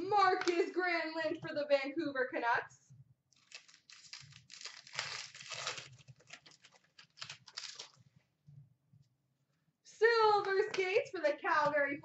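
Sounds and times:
wrapper crinkling and tearing: 0:03.3 - 0:08.0.

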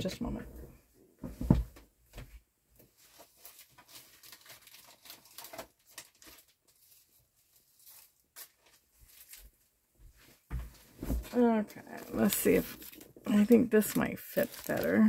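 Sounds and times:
plastic bags crinkling: 0:03.0 - 0:09.6, 0:11.2 - 0:15.0.

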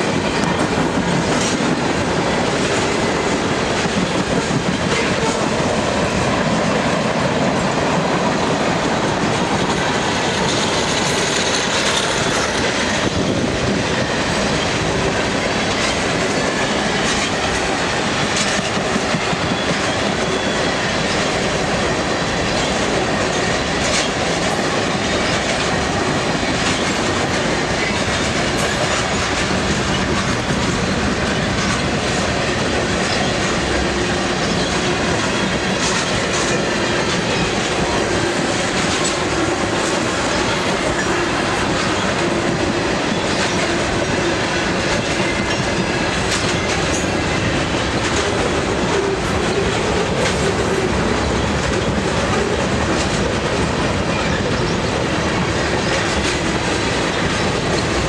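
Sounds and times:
clickety-clack over rail joints: 0:00.0 - 0:58.0
steel wheels on rail: 0:00.0 - 0:58.0.

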